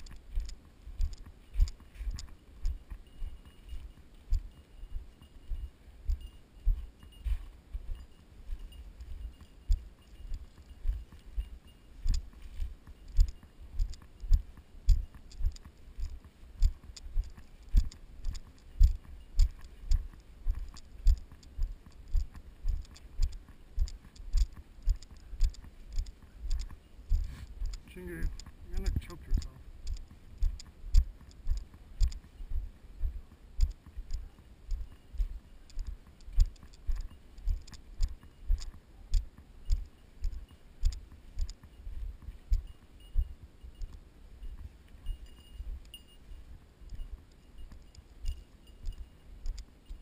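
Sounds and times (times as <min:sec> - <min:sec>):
footsteps through dry grass: 0:00.0 - 0:34.2.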